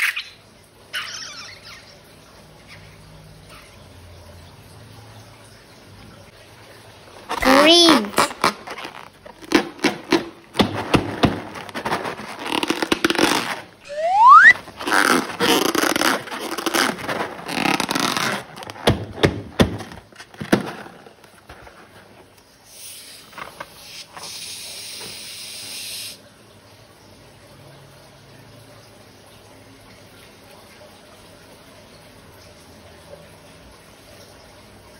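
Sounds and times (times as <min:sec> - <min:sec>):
slime squelching and crackling: 0:07.2 - 0:20.4
rubbery balloon squeak: 0:07.3 - 0:20.0.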